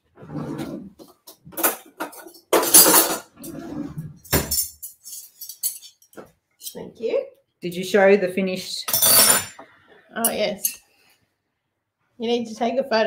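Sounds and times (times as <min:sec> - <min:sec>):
metal cutlery clattering: 0:01.0 - 0:06.8, 0:08.9 - 0:09.6.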